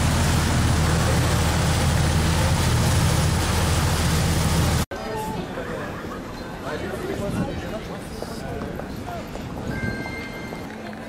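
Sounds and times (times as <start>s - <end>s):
boat engine drone: 0.0s - 4.8s
wind and water rush: 0.0s - 5.6s.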